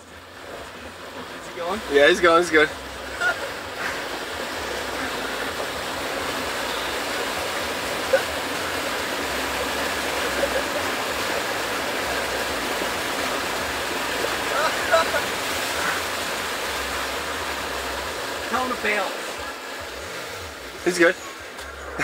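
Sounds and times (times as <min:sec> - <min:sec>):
floodwater rushing and splashing: 0:00.0 - 0:22.0.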